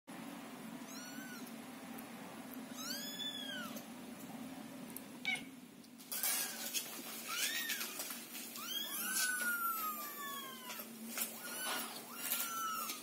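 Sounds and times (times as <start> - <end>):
kittens meowing: 0.8 - 1.6, 2.7 - 3.9, 8.6 - 13.0
rustling: 6.0 - 13.0.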